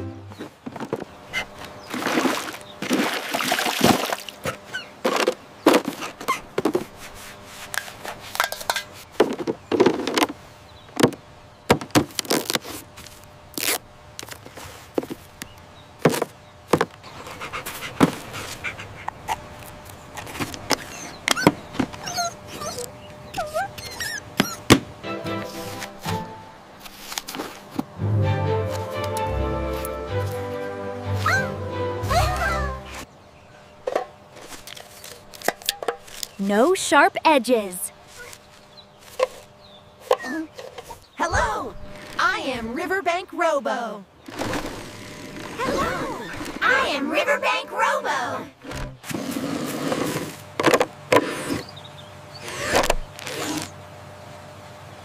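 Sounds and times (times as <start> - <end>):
short squeaky glides: 20.8 - 24.7.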